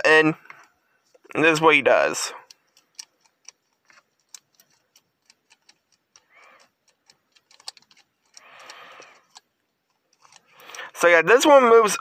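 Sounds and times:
small plastic toy clicks: 0:02.3 - 0:11.0.

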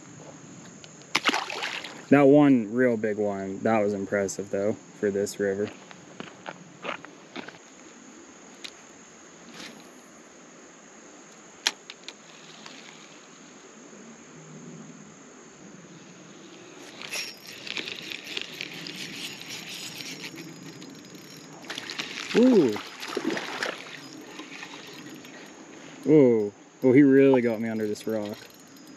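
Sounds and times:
insects droning: 0:00.0 - 0:28.9
scratchy rattle: 0:16.6 - 0:22.4.

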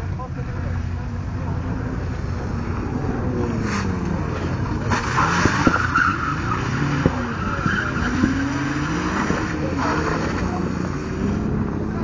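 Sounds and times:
car engine revving: 0:00.0 - 0:12.0
tyres skidding: 0:00.0 - 0:12.0.

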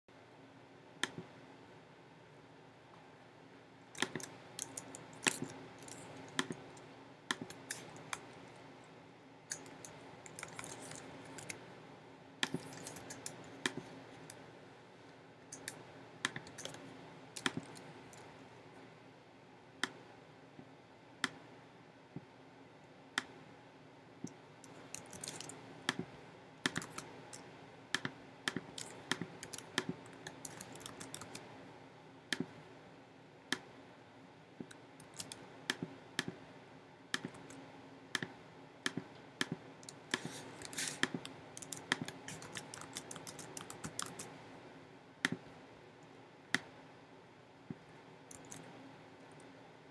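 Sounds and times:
faint steady hum: 0:00.1 - 0:49.9
sharp clicks and light taps: 0:37.2 - 0:37.6.

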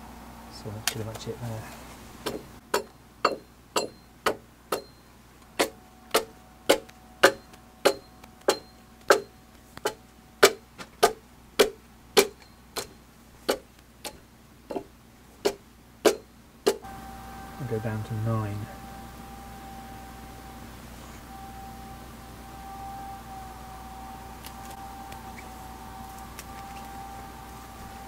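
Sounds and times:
axe chopping log: 0:05.6 - 0:12.9, 0:13.5 - 0:16.8.

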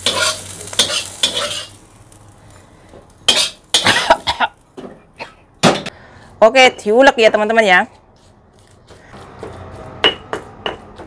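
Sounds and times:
metal spatula scraping a wok: 0:00.0 - 0:01.8, 0:03.3 - 0:04.2
hot oil sizzling: 0:00.0 - 0:05.9.

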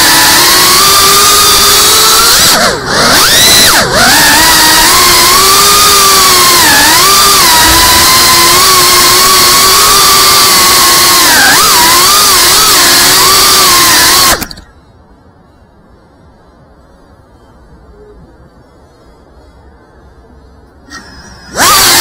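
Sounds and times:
quadcopter motors whining: 0:00.0 - 0:14.8, 0:20.8 - 0:22.0.

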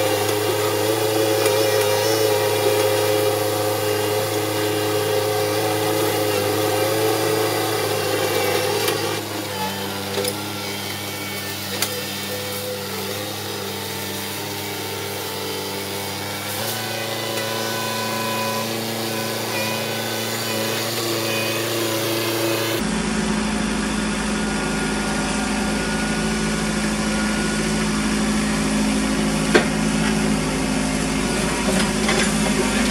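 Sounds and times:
tractor diesel engine running: 0:00.0 - 0:21.2, 0:21.9 - 0:32.9.

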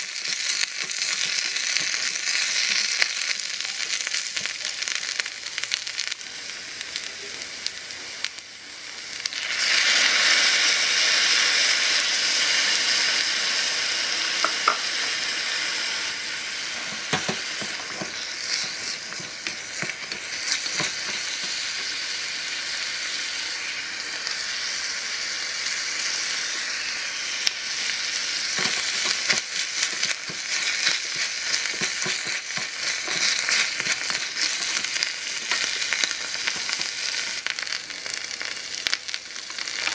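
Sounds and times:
chicken sizzling in a pan: 0:00.0 - 0:39.9
wooden spatula scraping a pan: 0:28.6 - 0:36.8.

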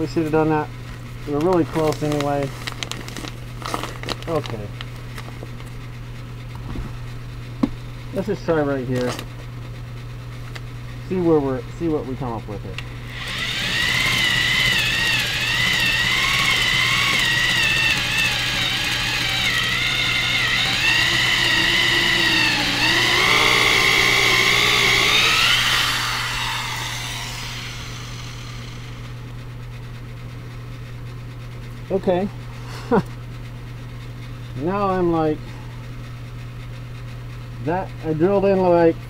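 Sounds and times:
electric drill whining into wood: 0:13.1 - 0:29.2.

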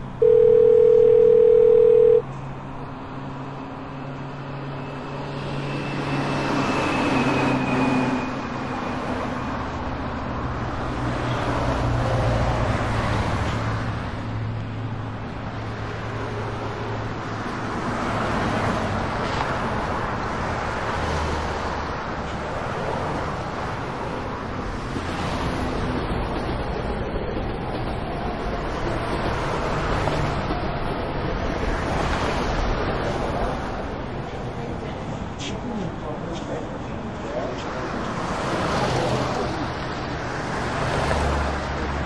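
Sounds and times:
city traffic noise: 0:00.0 - 0:42.0
telephone dial tone: 0:00.2 - 0:02.2.

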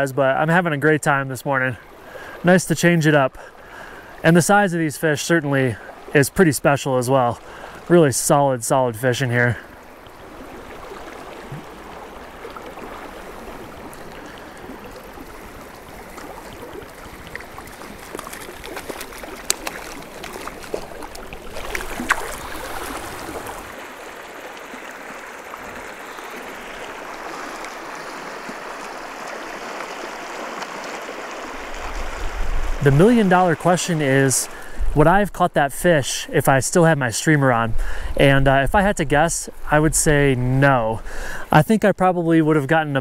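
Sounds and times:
river flowing over rocks: 0:09.8 - 0:34.8.

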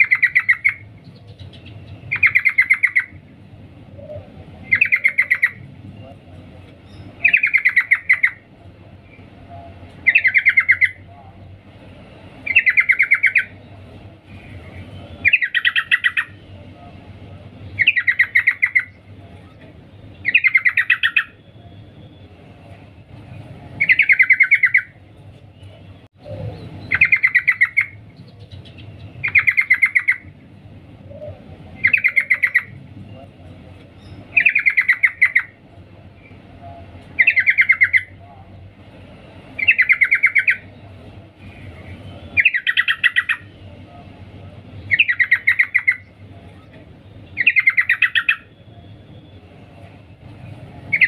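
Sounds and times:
bird chattering call: 0:00.0 - 0:03.2, 0:03.9 - 0:05.6, 0:06.9 - 0:08.4, 0:10.0 - 0:11.0, 0:12.4 - 0:13.6, 0:15.2 - 0:16.4, 0:17.8 - 0:19.0, 0:26.3 - 0:30.3, 0:31.1 - 0:32.8, 0:34.0 - 0:35.6, 0:39.6 - 0:40.7, 0:42.4 - 0:43.6, 0:44.9 - 0:46.2, 0:47.4 - 0:48.6.

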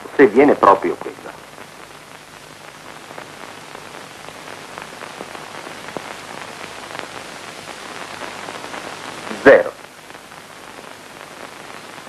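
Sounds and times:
faint crackles: 0:00.0 - 0:12.0
steady hiss: 0:00.0 - 0:12.0.

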